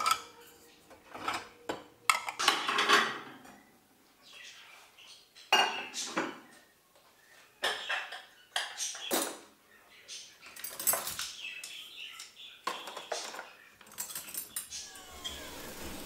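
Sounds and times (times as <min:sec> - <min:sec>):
dishes clinking and clattering: 0:00.0 - 0:03.6, 0:05.5 - 0:06.5, 0:07.6 - 0:09.6, 0:10.4 - 0:16.0.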